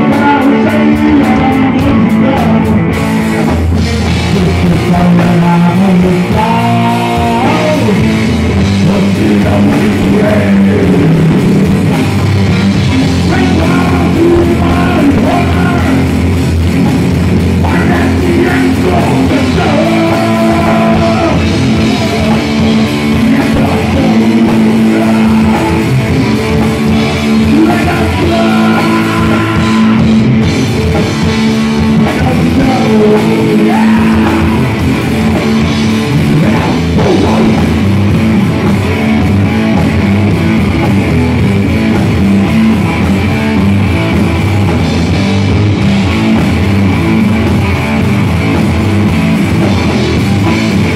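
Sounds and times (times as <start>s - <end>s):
man singing: 0.0s - 11.9s, 12.7s - 16.3s, 17.5s - 30.4s, 31.2s - 38.2s
hard rock band playing live: 0.0s - 50.9s.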